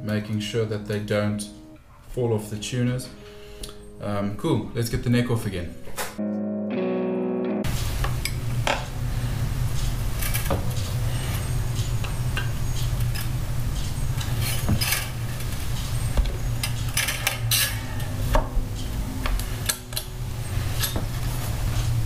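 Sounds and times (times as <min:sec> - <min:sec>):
guitar strings and hardware clinking: 0:09.8 - 0:13.4, 0:16.3 - 0:21.2.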